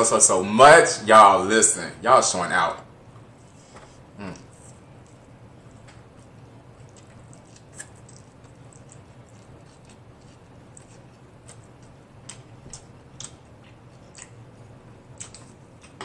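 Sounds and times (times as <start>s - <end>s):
low steady hum: 0.0s - 16.0s
chewing noodles: 4.3s - 16.0s.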